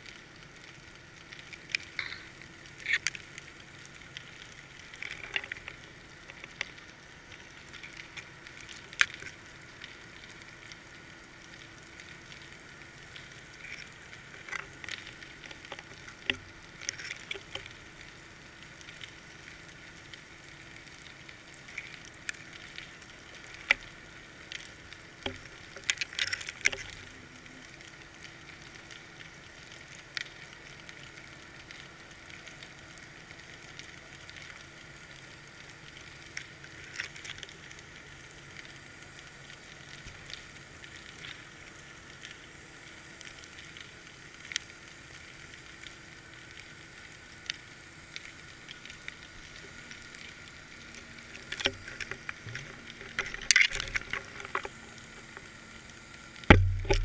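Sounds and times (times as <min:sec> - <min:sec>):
faint steady hum: 0:00.0 - 0:57.0
steady hiss: 0:00.0 - 0:57.0
underwater clicks and crackles: 0:00.0 - 0:57.0.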